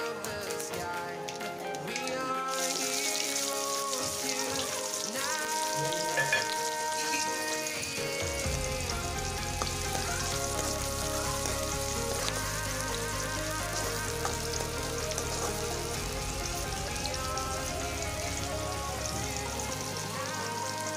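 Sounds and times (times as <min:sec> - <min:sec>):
soft background music: 0:00.0 - 0:20.9
spoon stirring: 0:01.9 - 0:07.8
onion sizzling in hot oil: 0:01.9 - 0:20.9.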